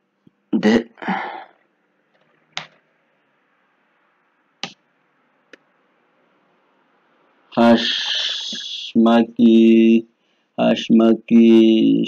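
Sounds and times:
keyboard keystroke clicks: 0:02.2 - 0:02.8.

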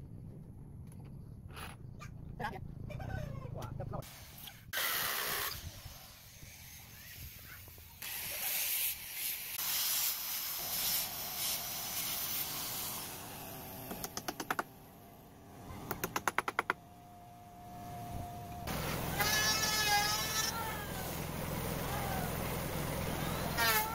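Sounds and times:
sharp clicks: 0:13.9 - 0:14.7.

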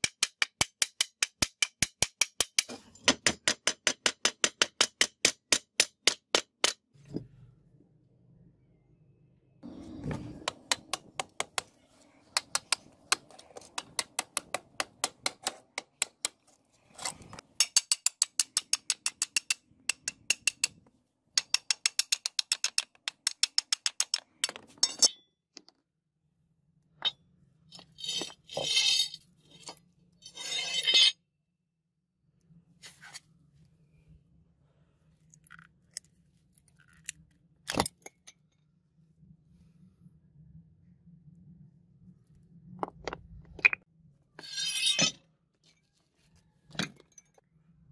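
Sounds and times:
hammer striking steel chisel: 0:00.0 - 0:06.8, 0:17.6 - 0:20.8.

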